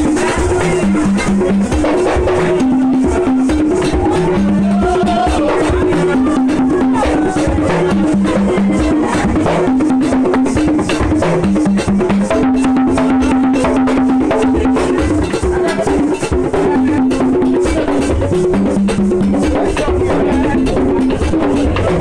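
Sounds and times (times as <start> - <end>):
rapid hand-drum strokes: 0.0 - 22.0.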